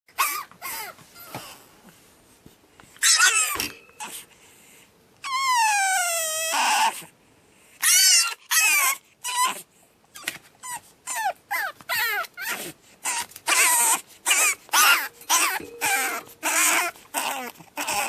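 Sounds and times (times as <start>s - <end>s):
puppy screaming and squealing: 3.0s - 3.7s, 7.8s - 15.5s.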